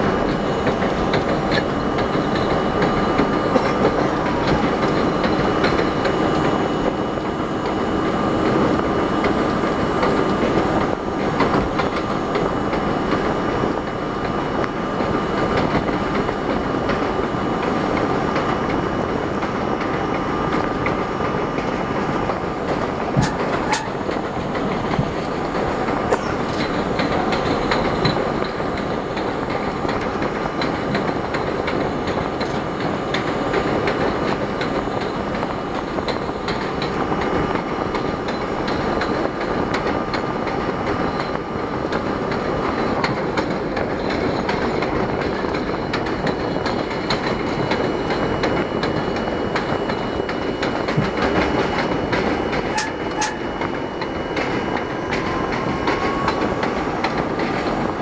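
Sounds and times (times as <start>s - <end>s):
subway train rumble: 0.0s - 58.0s
thin steady whine: 0.0s - 58.0s
wheels clicking over rails: 0.0s - 58.0s.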